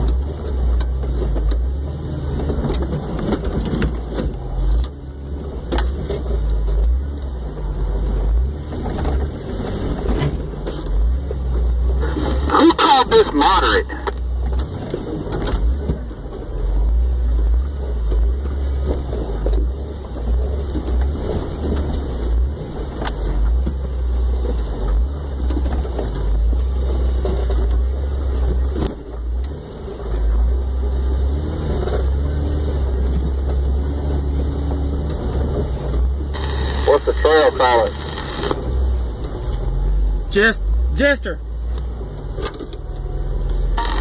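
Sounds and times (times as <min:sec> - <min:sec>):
low engine rumble: 0:00.0 - 0:44.0
knocks and rattles over rocks: 0:02.3 - 0:04.9, 0:18.0 - 0:29.6.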